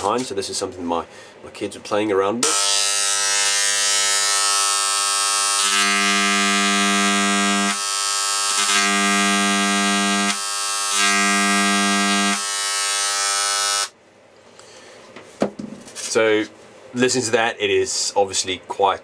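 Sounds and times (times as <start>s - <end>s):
engraving pen buzzing on metal: 2.4s - 14.0s.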